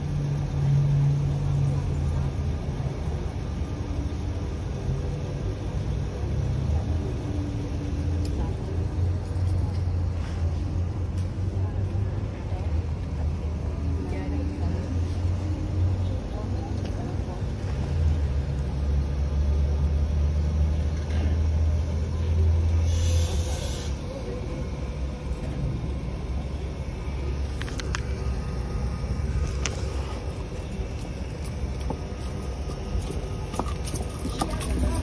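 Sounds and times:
motor vehicle rumble: 0.0 - 35.0
short hiss: 22.8 - 24.0.

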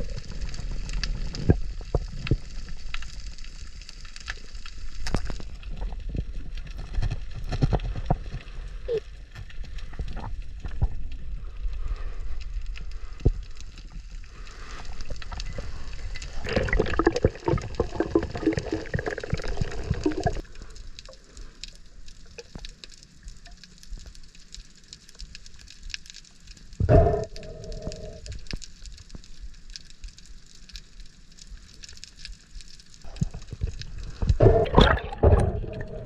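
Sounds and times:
bubbling: 0.0 - 3.8, 13.0 - 22.8, 26.8 - 28.6, 33.0 - 36.0
water gurgling underwater: 15.2 - 20.4, 26.8 - 28.4, 33.1 - 36.0
underwater clicks: 33.1 - 36.0.

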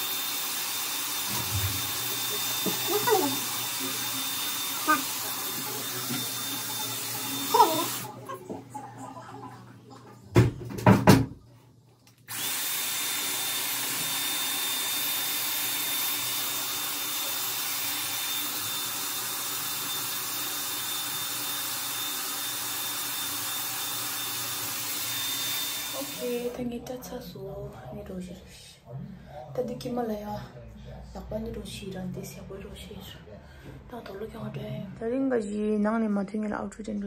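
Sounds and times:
hot-air styler blowing: 0.0 - 8.3, 12.3 - 26.6.

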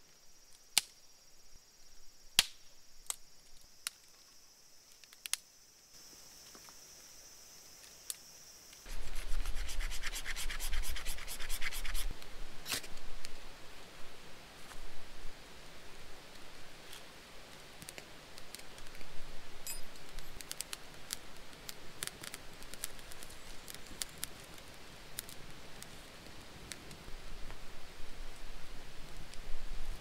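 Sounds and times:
rubbing and scratching tinder: 8.9 - 12.1
dry twigs snapping: 20.4 - 27.0.

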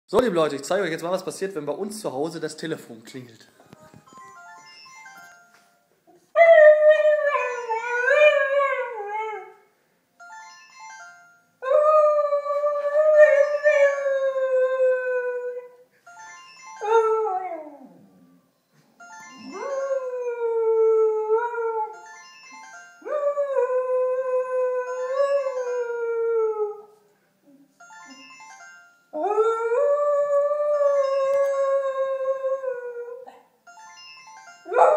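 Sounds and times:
telephone ringing: 3.8 - 5.9, 10.2 - 11.6, 16.0 - 16.9, 19.0 - 19.9, 27.8 - 29.1, 33.7 - 34.9.

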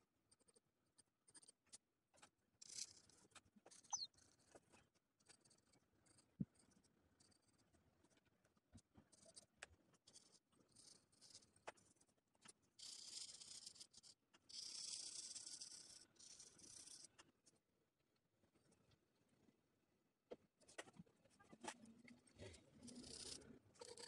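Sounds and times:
pencil scratching on paper: 0.3 - 1.8, 2.6 - 8.2, 8.8 - 17.4, 20.6 - 24.0.

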